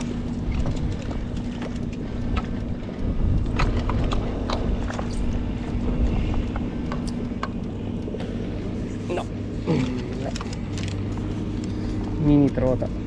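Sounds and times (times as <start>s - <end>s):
wind rumble on microphone: 0.0s - 9.4s.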